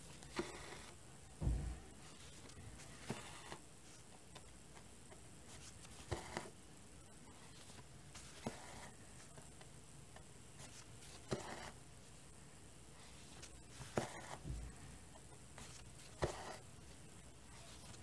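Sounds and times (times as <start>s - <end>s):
soft low bump: 1.4s - 2.0s.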